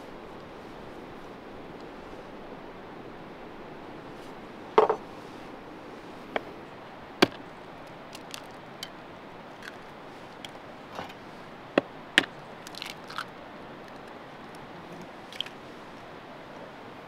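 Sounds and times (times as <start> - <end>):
eggshell crackling apart: 7.2 - 8.6, 12.2 - 14.6.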